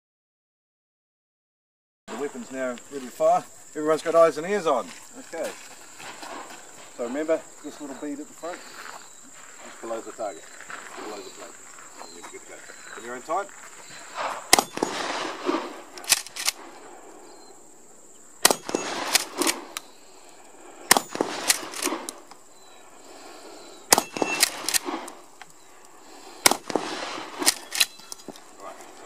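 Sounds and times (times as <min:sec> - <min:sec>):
shotgun shots: 0:14.1 - 0:16.9, 0:18.4 - 0:19.8, 0:20.9 - 0:22.3, 0:23.9 - 0:25.2, 0:26.4 - 0:28.4
shotgun pump clacks: 0:16.0 - 0:16.6, 0:18.4 - 0:19.9, 0:20.9 - 0:22.2, 0:23.9 - 0:25.6, 0:26.4 - 0:28.5.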